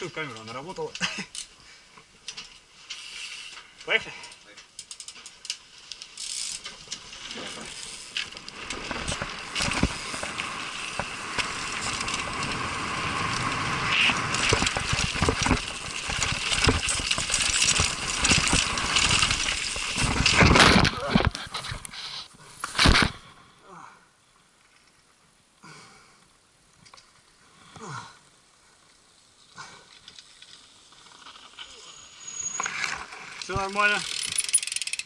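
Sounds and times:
tyres on dirt and stone: 0:00.0 - 0:23.4, 0:28.9 - 0:35.0
bike rattling over bumps: 0:04.4 - 0:21.8, 0:32.4 - 0:35.0.

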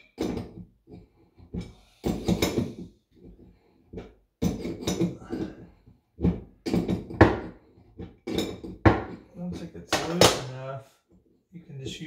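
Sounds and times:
wrench clinking and scraping metal: 0:08.0 - 0:09.7.

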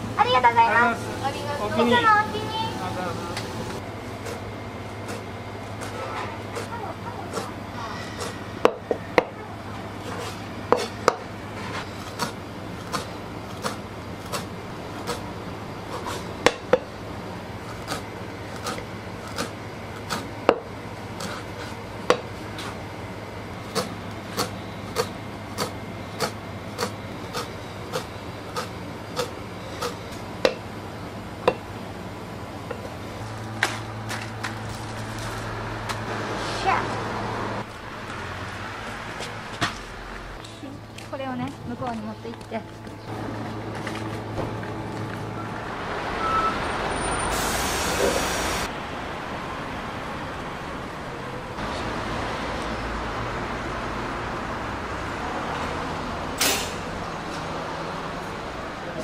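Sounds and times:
steady low hum: 0:00.0 - 0:45.9
knife chopping on cutting board: 0:23.7 - 0:30.6.

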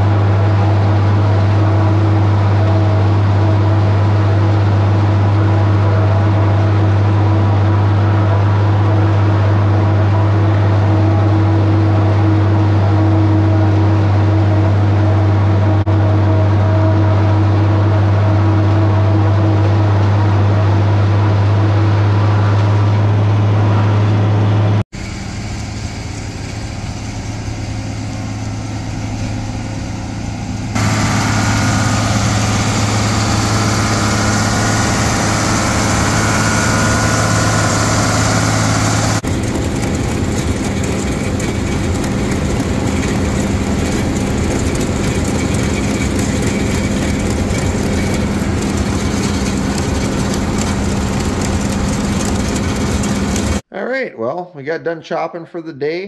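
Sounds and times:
farm machinery running: 0:00.0 - 0:53.6
tractor engine drone: 0:00.0 - 0:53.7
chopped corn fed onto conveyor: 0:30.8 - 0:53.6.

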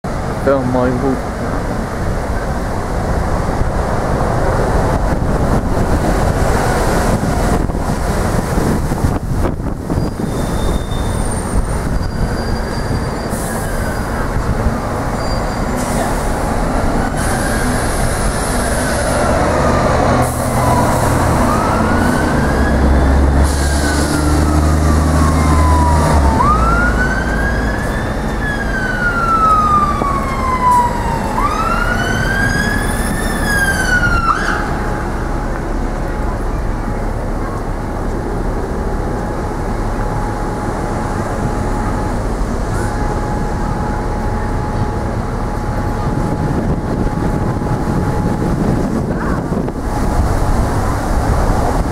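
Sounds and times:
city street traffic: 0:00.0 - 0:51.9
bus engine low rumble: 0:00.1 - 0:51.9
emergency vehicle siren wailing: 0:11.0 - 0:51.9.

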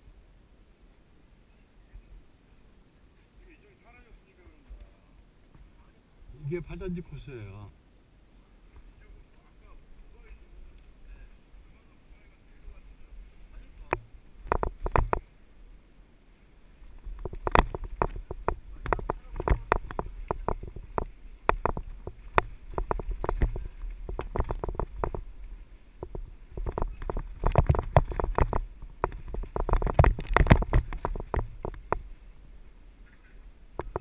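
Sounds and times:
bike rattling over rough trail: 0:13.6 - 0:15.3, 0:16.8 - 0:32.4, 0:33.7 - 0:34.0.

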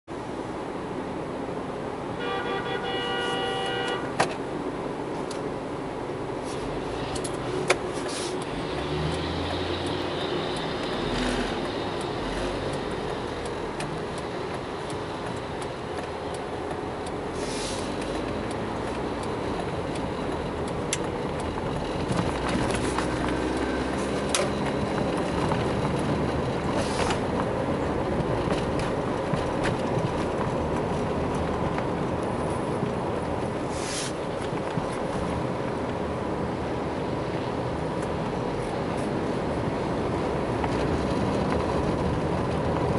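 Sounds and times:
car engine and road noise: 0:00.0 - 0:42.9
car horn toot: 0:02.2 - 0:04.2.

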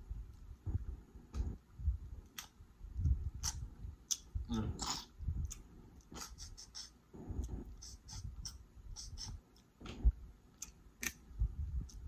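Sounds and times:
chewing with wet mouth clicks: 0:02.3 - 0:02.6, 0:03.4 - 0:06.6.

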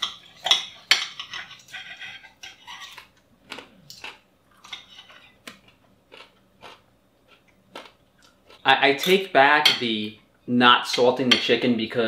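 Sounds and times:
cutlery scraping on ceramic plates: 0:00.0 - 0:03.1, 0:04.6 - 0:05.4
chewing: 0:01.4 - 0:08.7.

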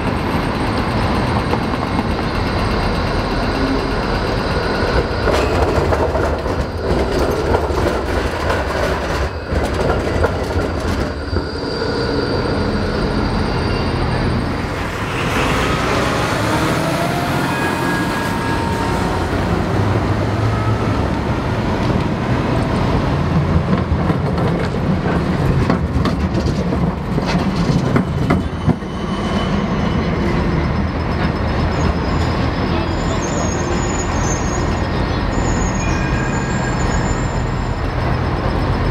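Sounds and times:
road traffic: 0:00.0 - 0:38.9
tram wheel squeal: 0:00.0 - 0:38.9
tram wheels clacking over tracks: 0:00.0 - 0:38.9
heavy truck passing: 0:12.5 - 0:24.1.

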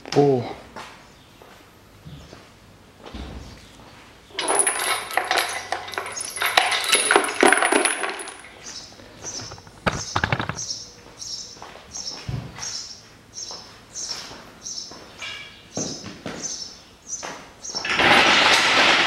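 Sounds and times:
chain rattling against metal: 0:04.3 - 0:08.7
bird chirping: 0:08.5 - 0:17.9.

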